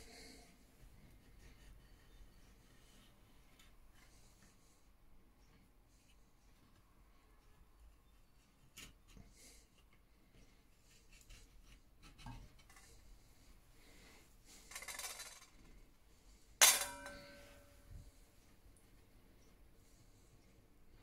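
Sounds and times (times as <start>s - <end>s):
metal bowl ringing clink: 16.6s - 17.8s.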